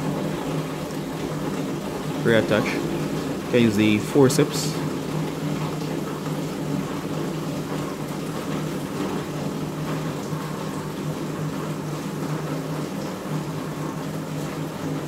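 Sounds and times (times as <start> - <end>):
steady low hum: 1.8 - 5.4.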